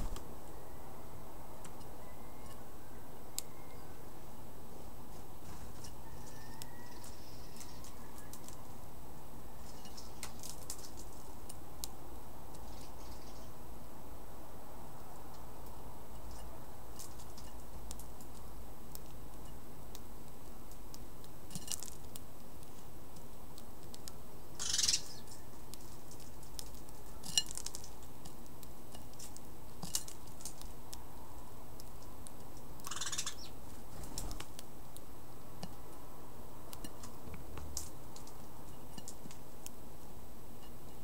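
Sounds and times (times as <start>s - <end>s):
beaks pecking seed: 15.0s - 41.0s.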